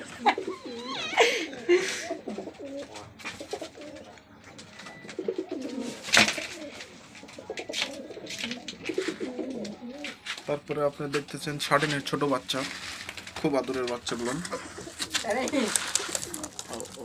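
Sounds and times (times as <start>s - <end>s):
pigeons cooing: 0.0s - 10.4s, 13.9s - 17.0s.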